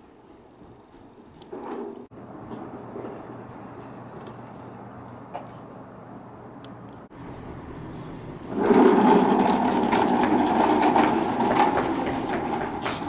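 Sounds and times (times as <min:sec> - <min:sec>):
toy car wheels rolling on floor: 0:08.5 - 0:13.0.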